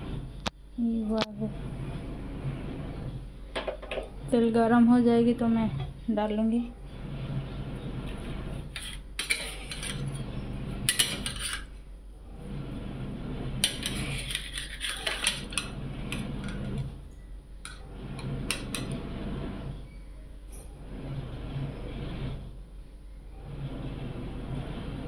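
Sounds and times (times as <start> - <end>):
steady low hum: 0.0 - 25.0
pots and utensils clattering: 8.7 - 10.3, 10.9 - 11.7, 13.6 - 16.8, 17.7 - 19.0.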